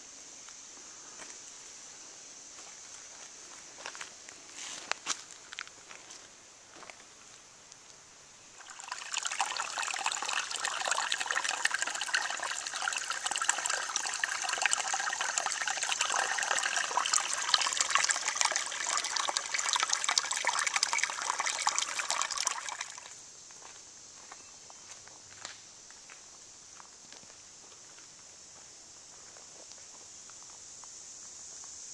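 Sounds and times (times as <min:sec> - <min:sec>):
water trickling over rock: 0:08.6 - 0:23.2.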